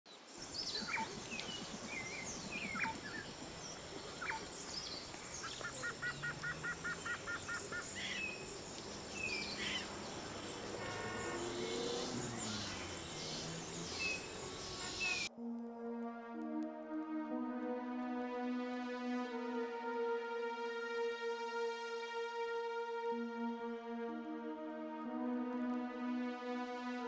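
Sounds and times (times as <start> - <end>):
birds chirping and whistling: 0.5 - 15.3
bird trill: 0.6 - 3.3, 4.2 - 15.3.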